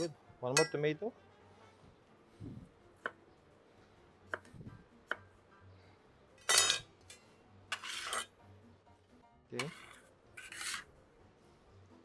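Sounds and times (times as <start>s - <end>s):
knife scraping: 7.7s - 8.3s, 9.6s - 10.9s.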